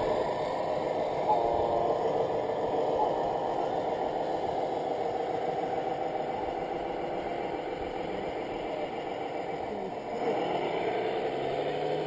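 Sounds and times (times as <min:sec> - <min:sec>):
radio-controlled trucks engine drone: 0:00.0 - 0:12.0.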